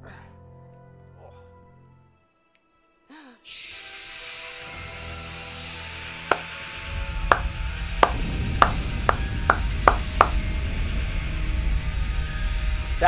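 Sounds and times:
deep rumble: 0:08.2 - 0:13.0.

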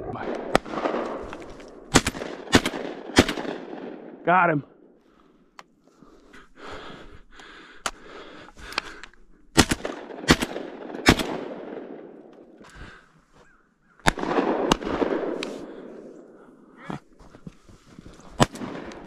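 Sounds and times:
sharp cracks: 0:00.2 - 0:04.2, 0:07.3 - 0:13.1, 0:14.0 - 0:16.1, 0:18.3 - 0:19.0
shotgun blasts echoing: 0:00.2 - 0:04.2, 0:09.5 - 0:12.5, 0:14.0 - 0:16.2, 0:18.4 - 0:19.0.

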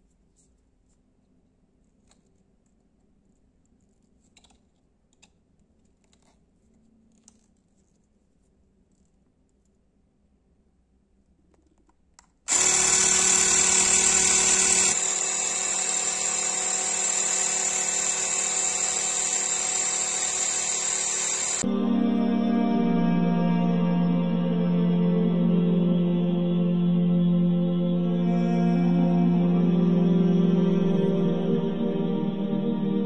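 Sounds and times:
electric air pump whining: 0:12.5 - 0:21.7.

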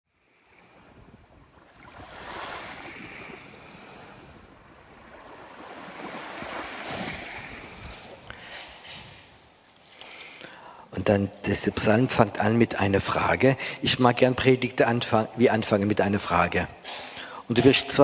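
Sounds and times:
sea waves washing onto beach: 0:00.3 - 0:09.3.

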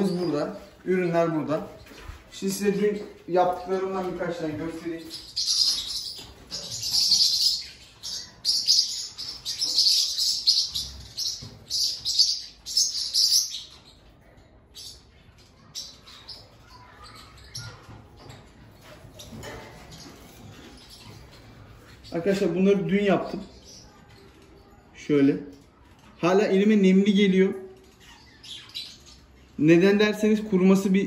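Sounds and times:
budgerigars chirping: 0:02.4 - 0:13.9.

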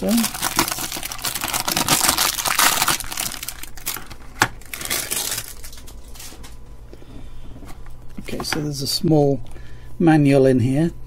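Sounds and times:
cellophane bag crinkling: 0:00.0 - 0:06.6.

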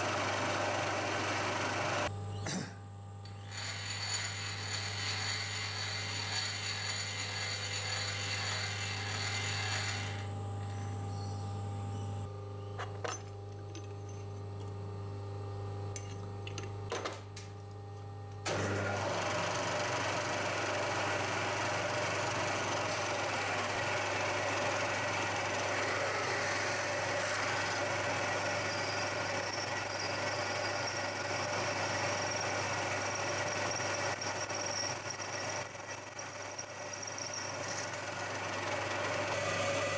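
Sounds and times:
drill cutting metal: 0:03.3 - 0:10.3, 0:18.5 - 0:39.9
milling machine spindle whine: 0:03.3 - 0:10.9, 0:18.5 - 0:39.9.

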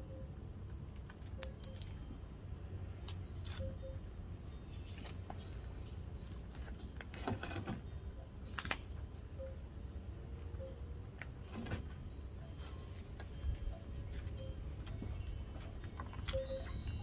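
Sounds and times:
steady low rumble: 0:00.0 - 0:07.1, 0:07.8 - 0:17.0
dry fibre crackling and snapping: 0:01.0 - 0:02.0, 0:03.0 - 0:03.7, 0:08.5 - 0:08.8.

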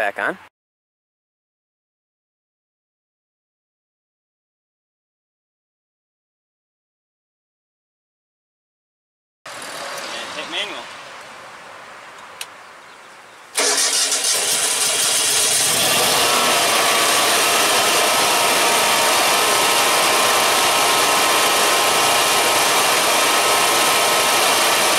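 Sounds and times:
generator engine starting and running: 0:13.6 - 0:24.9.

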